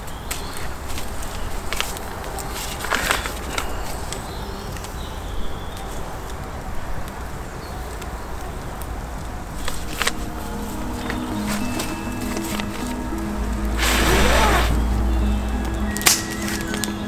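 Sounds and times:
campfire crackling and popping: 0:00.0 - 0:17.0
low rumble: 0:08.8 - 0:16.1.

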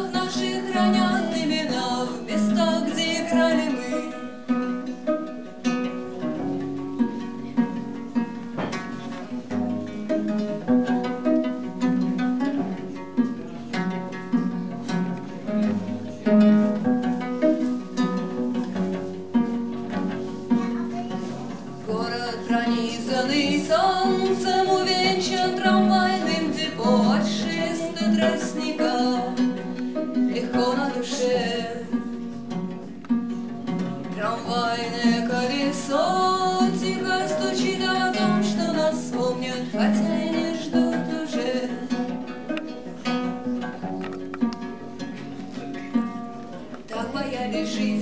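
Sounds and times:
woman singing: 0:00.0 - 0:04.6, 0:21.7 - 0:32.2, 0:34.1 - 0:42.2, 0:46.9 - 0:48.0
plucked viola da gamba: 0:00.0 - 0:48.0.

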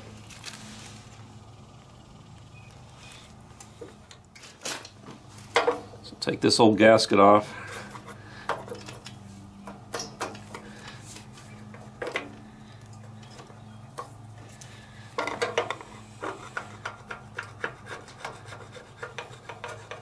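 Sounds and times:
hand tool scraping gasket: 0:16.2 - 0:20.0.

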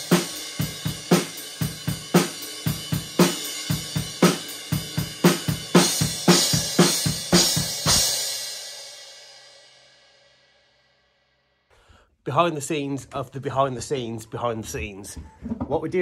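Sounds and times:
drum kit beat: 0:00.0 - 0:08.9.

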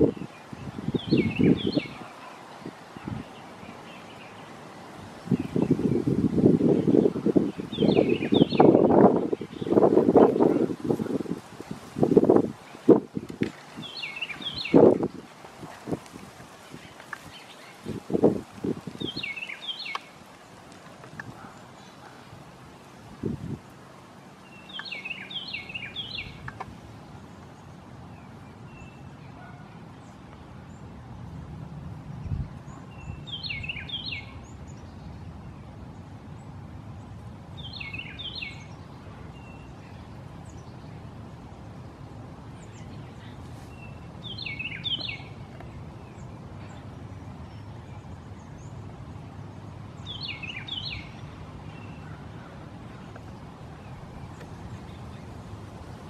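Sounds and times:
bird singing warbled phrases: 0:00.0 - 0:11.2, 0:12.6 - 0:15.2, 0:16.7 - 0:20.3, 0:24.3 - 0:26.6, 0:32.2 - 0:35.5, 0:37.6 - 0:41.1, 0:41.8 - 0:55.4.

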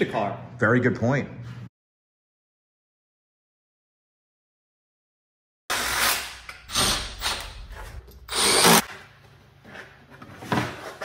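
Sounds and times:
power tool bursts: 0:08.3 - 0:08.9.

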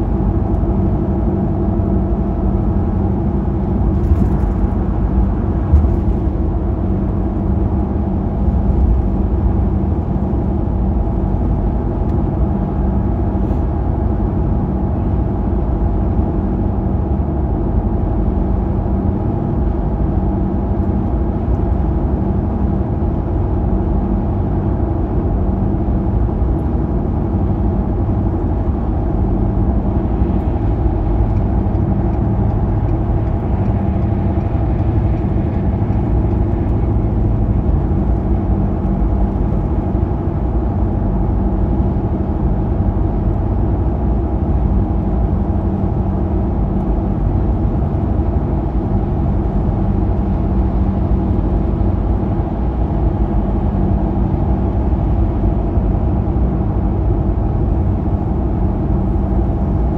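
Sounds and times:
car engine hum: 0:00.0 - 0:59.9
tyre and road rumble: 0:03.4 - 0:10.0.

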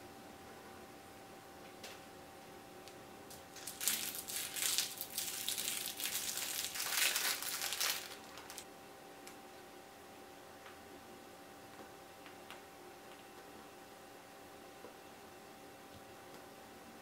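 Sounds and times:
plastic wrapper crinkling: 0:03.5 - 0:08.7.

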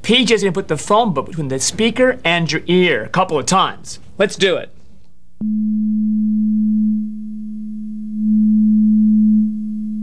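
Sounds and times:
low pure tone from speaker: 0:05.3 - 0:10.0.

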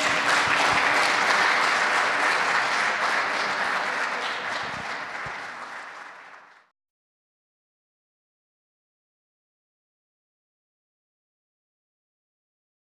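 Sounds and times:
audience applause: 0:00.0 - 0:06.7.

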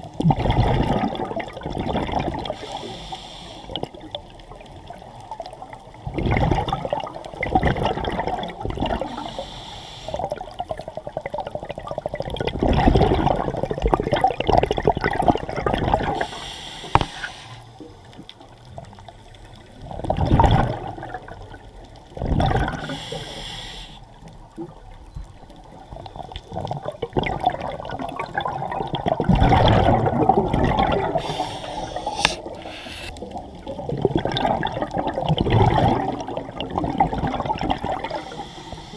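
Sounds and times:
exhaled bubbles gurgling underwater: 0:00.0 - 0:38.9
sharp clicks: 0:31.8 - 0:33.2.

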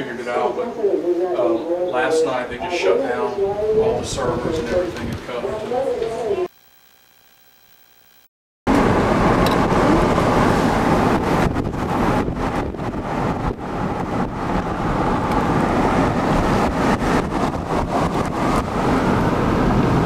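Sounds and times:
wind buffeting microphone: 0:02.4 - 0:06.4, 0:08.7 - 0:20.0.

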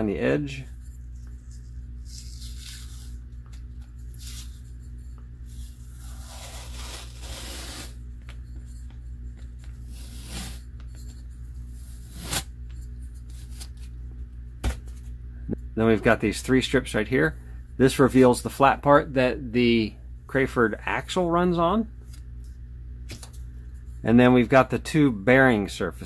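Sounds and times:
masking tape ripping off: 0:06.0 - 0:08.0.

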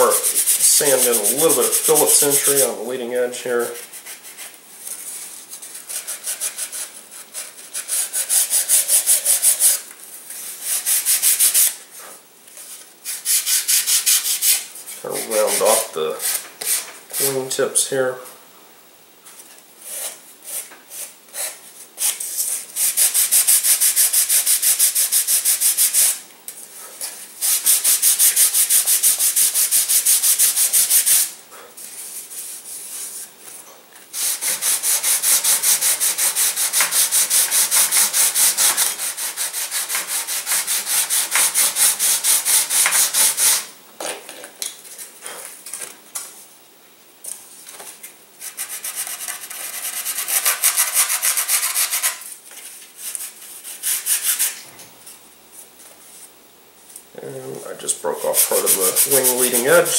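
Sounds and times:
sanding block rubbing wood: 0:00.0 - 0:02.8, 0:05.6 - 0:09.8, 0:10.4 - 0:11.8, 0:13.1 - 0:17.4, 0:22.8 - 0:26.2, 0:27.4 - 0:31.3, 0:34.2 - 0:43.7, 0:48.4 - 0:52.2, 0:53.0 - 0:54.6, 0:58.1 - 0:59.9.

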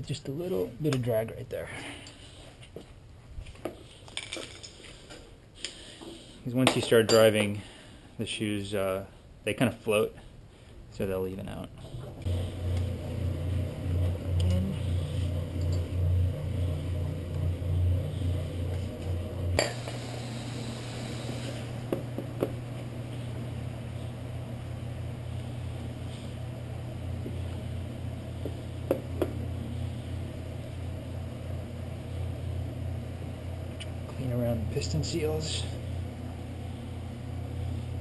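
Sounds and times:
low pulsing hum: 0:11.7 - 0:38.0.

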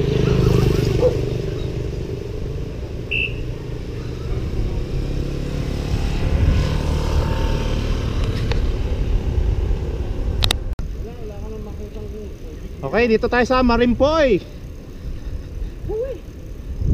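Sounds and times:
wind rushing over microphone: 0:00.0 - 0:11.9, 0:13.1 - 0:16.9
bicycle tyre rumble on concrete: 0:00.0 - 0:16.9
motorcycle engine running: 0:00.0 - 0:16.9
short high chirp: 0:03.1 - 0:03.6.

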